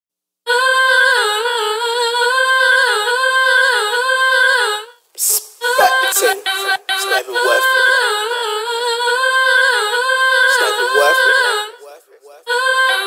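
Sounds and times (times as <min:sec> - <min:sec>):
wordless female vocal melody: 0:00.5 - 0:13.0
chopped vocal snippets: 0:05.2 - 0:07.9, 0:10.5 - 0:12.5.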